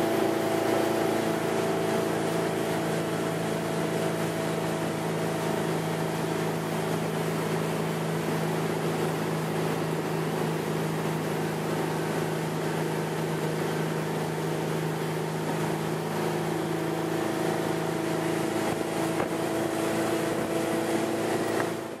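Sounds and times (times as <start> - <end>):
motorboat engine running: 0.0 - 22.0
water wake and spray: 0.0 - 22.0
wind: 0.0 - 22.0.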